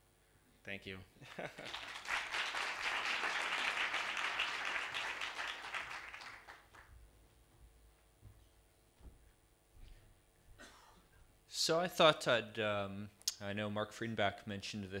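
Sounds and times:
audience applauding: 1.2s - 6.9s.

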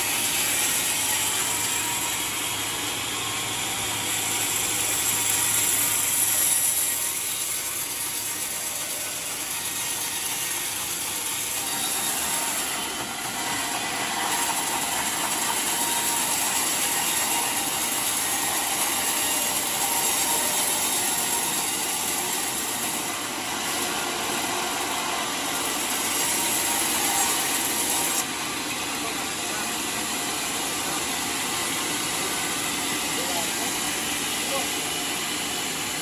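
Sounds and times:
band saw cutting log: 0.0s - 36.0s.

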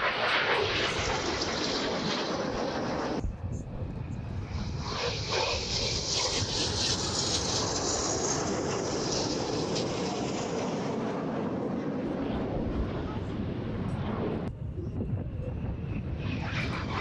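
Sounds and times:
high jet whine: 0.0s - 17.0s
jet engine roar: 0.0s - 17.0s.

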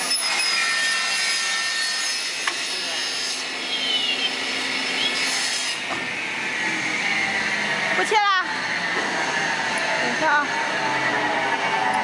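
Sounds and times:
circular saw whining: 0.0s - 12.0s.

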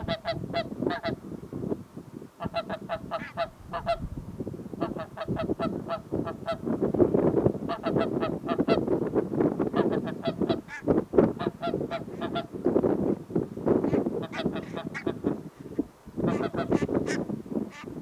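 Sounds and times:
geese honking: 2.4s - 4.0s, 9.8s - 12.5s, 13.9s - 15.3s, 16.3s - 17.9s.

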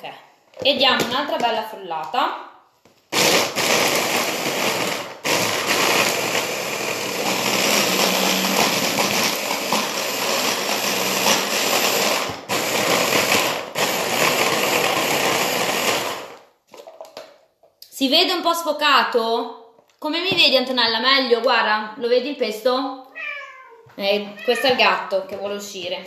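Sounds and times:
stick blender chopping: 3.1s - 16.4s.

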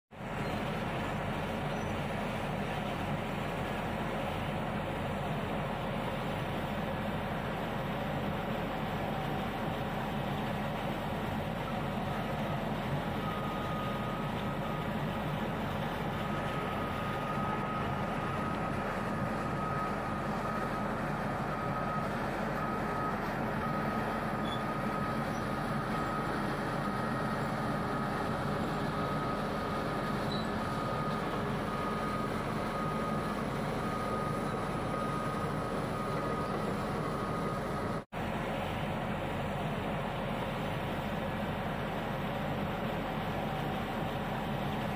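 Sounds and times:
bulldozer diesel engine running: 0.1s - 44.9s
reversing alarm beeping: 7.8s - 38.0s.

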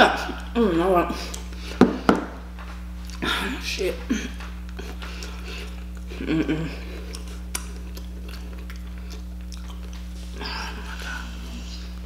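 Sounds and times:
steady low hum: 0.0s - 12.0s
chewing and wet mouth sounds: 1.2s - 1.8s, 3.0s - 3.2s, 4.3s - 12.0s.

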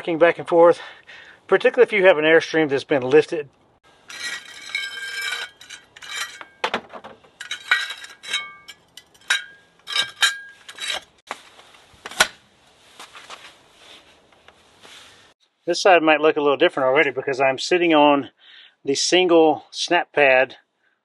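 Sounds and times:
metal wheel chock clinking: 4.0s - 6.7s, 7.3s - 11.2s
sharp metal clank: 7.4s - 11.1s.

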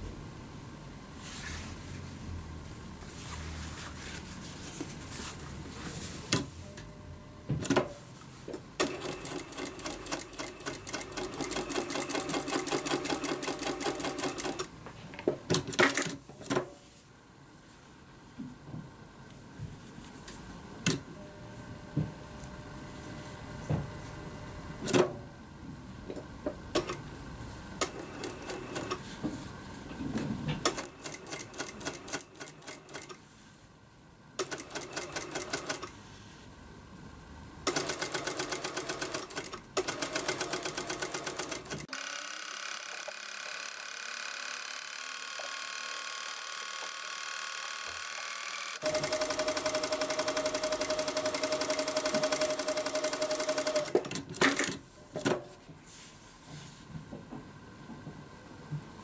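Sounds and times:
sewing machine stitching: 8.8s - 14.7s, 27.8s - 29.0s, 30.6s - 33.2s, 34.4s - 35.9s, 37.7s - 54.8s.

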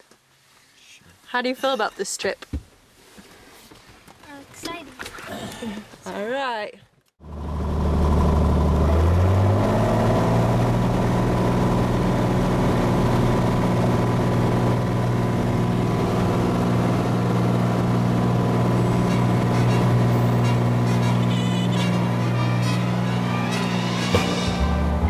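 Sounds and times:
light aircraft engine at full power: 7.2s - 25.0s.

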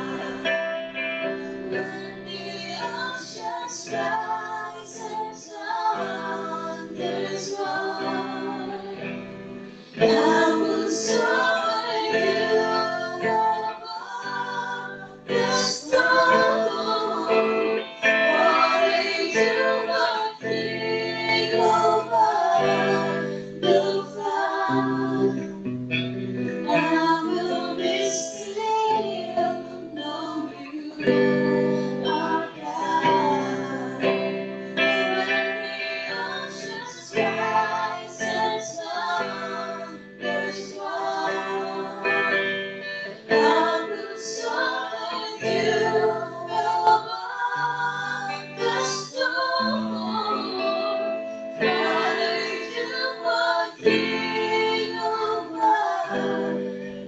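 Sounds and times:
woman singing into microphone: 0.0s - 25.8s, 26.4s - 57.0s
electric guitar: 0.0s - 57.0s.

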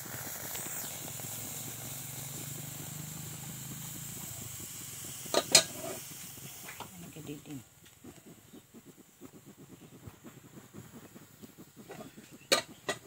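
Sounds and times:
fish sizzling in a hot pan: 0.0s - 13.0s.

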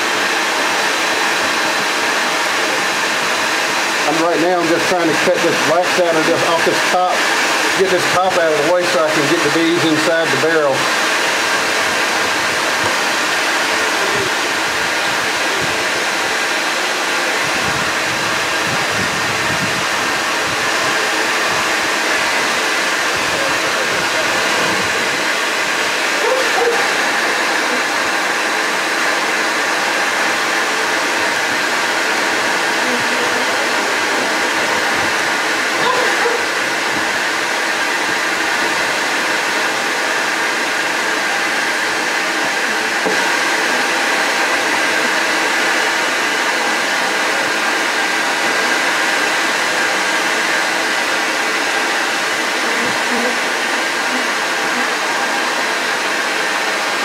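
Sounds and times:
bee vacuum whooshing hum: 1.4s - 37.3s.

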